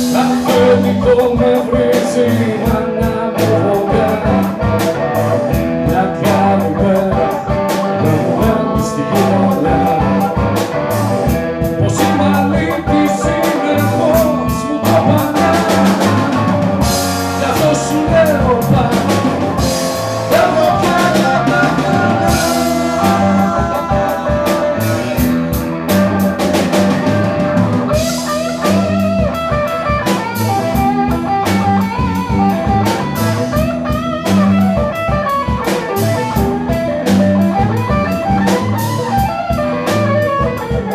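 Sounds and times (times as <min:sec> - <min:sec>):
man singing: 0:00.0 - 0:31.8
bass guitar: 0:00.0 - 0:40.9
drum kit beat: 0:00.0 - 0:40.9
electric guitar: 0:00.0 - 0:40.9
keyboard: 0:00.0 - 0:40.9.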